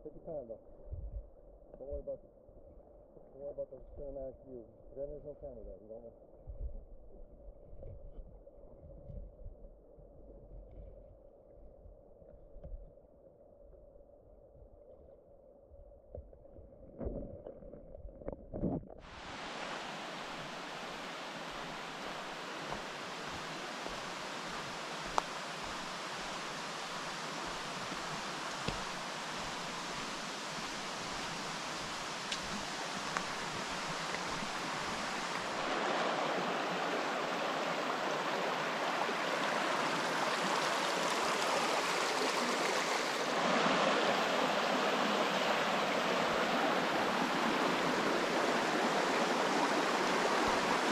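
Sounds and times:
water running over rocks: 17.0s - 50.9s.

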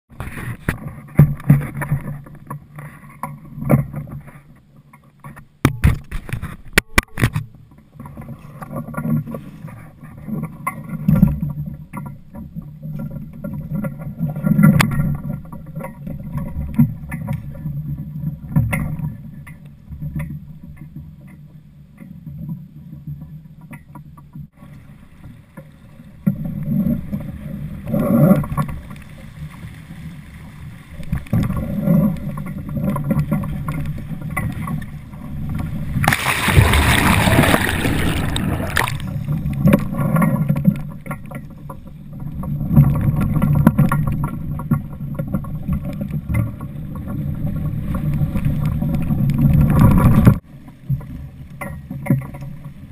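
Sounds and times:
water slapping against boat hull: 35.9s - 41.4s.

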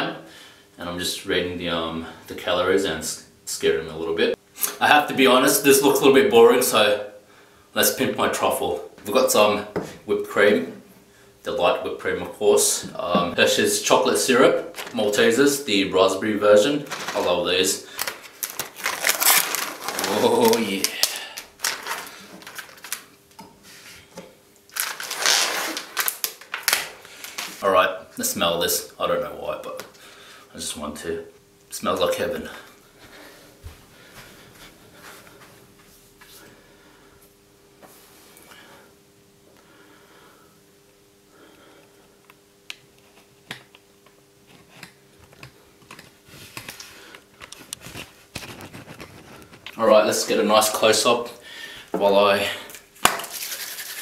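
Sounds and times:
packaging rustling: 14.7s - 15.3s, 16.7s - 23.2s, 24.7s - 27.6s, 45.2s - 49.8s
plastic film crinkling: 14.7s - 15.3s, 16.6s - 23.2s, 24.7s - 27.6s, 45.3s - 50.8s.

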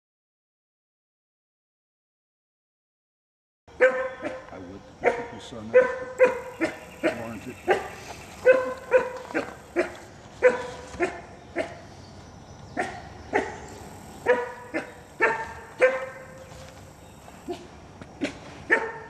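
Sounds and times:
wolf pup yelping: 3.8s - 11.9s, 12.8s - 16.6s, 18.7s - 19.0s.

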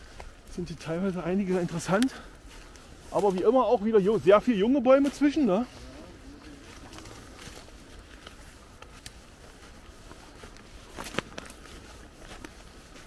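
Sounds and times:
footsteps through dry leaves: 0.0s - 13.0s
small twig cracks: 10.9s - 11.6s.

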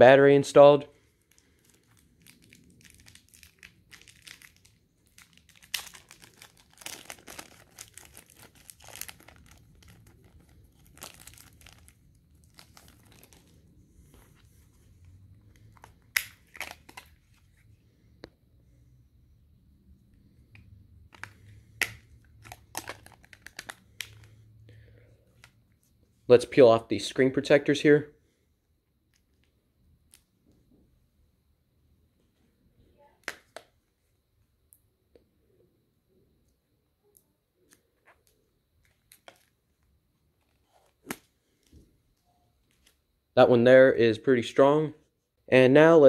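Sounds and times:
plastic bag crinkling and tearing: 1.0s - 13.7s, 15.6s - 17.4s, 21.1s - 24.3s.

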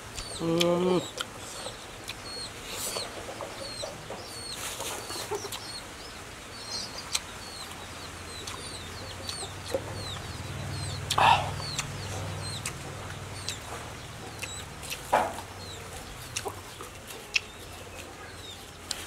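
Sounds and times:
chickens clucking and peeping: 0.0s - 19.0s
faint eating clicks: 0.0s - 19.0s.

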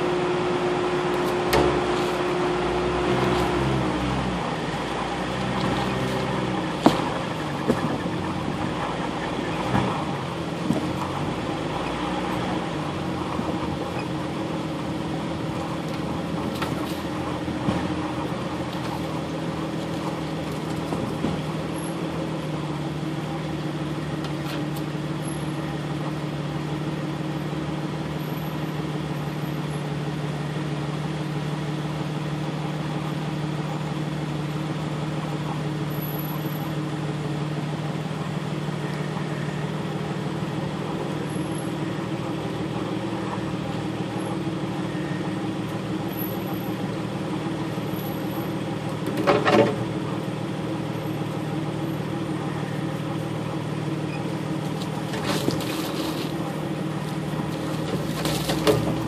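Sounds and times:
off-road vehicle engine running: 0.0s - 59.0s.

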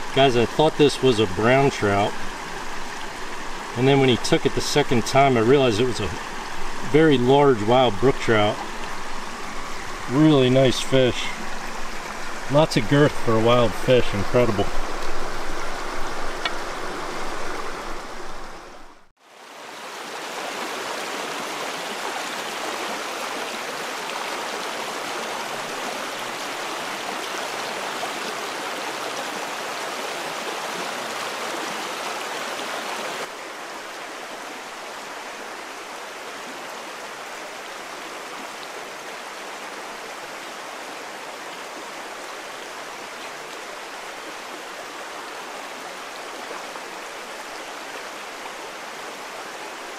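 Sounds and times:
stream rushing over riffles: 0.0s - 49.9s.

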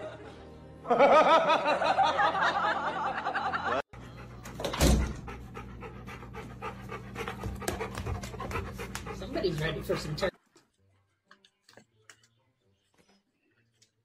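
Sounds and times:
music: 0.0s - 5.6s, 6.2s - 14.0s
dog panting: 4.0s - 10.4s.

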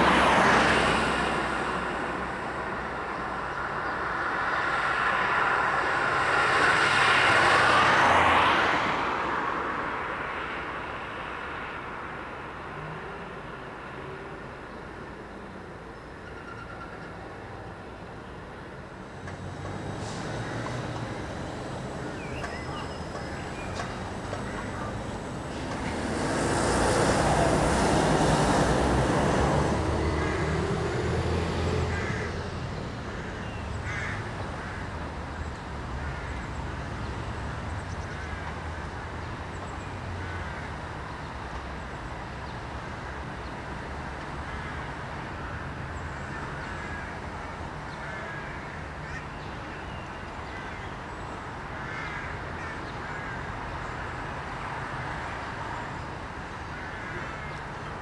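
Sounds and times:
vehicle passing with tyre hiss: 0.0s - 14.5s, 18.8s - 49.2s
distant traffic hum: 0.0s - 58.0s
bird calls: 22.0s - 25.2s.

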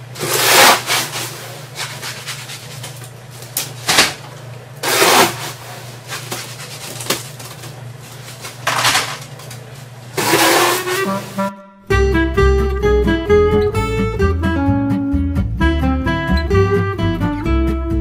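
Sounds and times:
plastic scoop scraping wet concrete: 0.2s - 3.0s, 4.8s - 7.1s, 10.2s - 11.4s.

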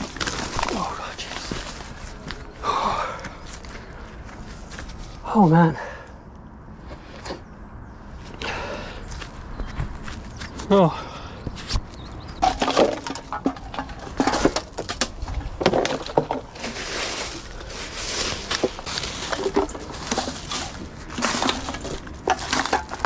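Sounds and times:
plastic wrappers crinkling: 0.0s - 1.9s, 15.7s - 23.0s
rustling dead leaves: 0.0s - 5.5s, 12.4s - 23.0s.

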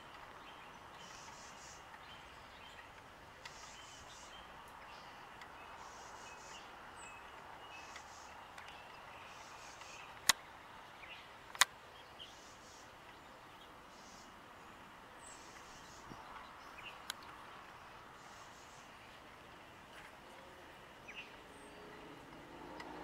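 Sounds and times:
faint bird chirps: 0.0s - 11.3s, 11.9s - 19.3s
sharp clicks: 9.6s - 10.4s, 11.5s - 11.8s.

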